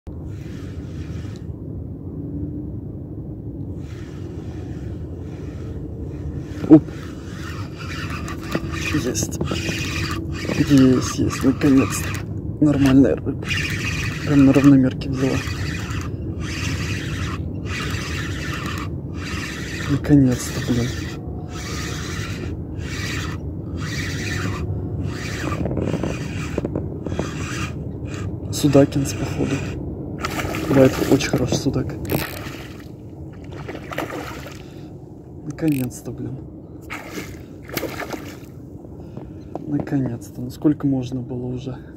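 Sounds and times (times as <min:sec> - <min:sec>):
wind buffeting microphone: 0:00.1 - 0:41.0
fishing reel rasping whir: 0:00.2 - 0:01.5, 0:03.7 - 0:34.9, 0:35.6 - 0:36.0, 0:36.8 - 0:38.6.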